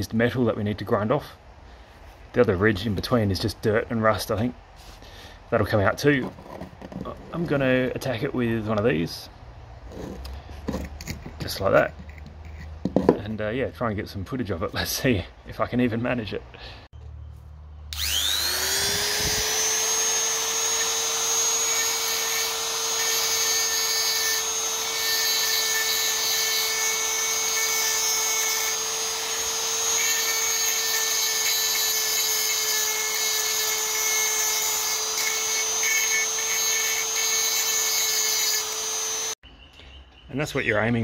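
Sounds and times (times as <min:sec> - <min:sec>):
rotary tool grinding steel: 0:09.8 - 0:13.1, 0:17.9 - 0:39.4.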